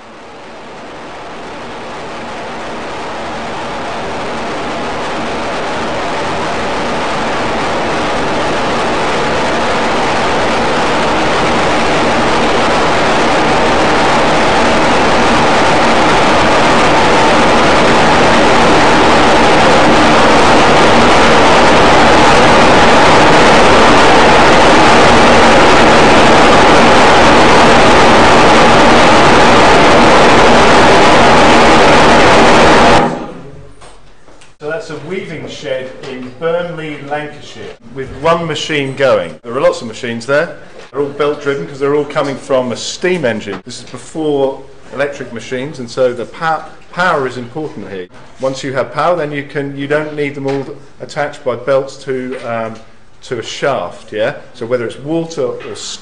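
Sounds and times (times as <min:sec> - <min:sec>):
power loom running: 0:00.0 - 0:33.5.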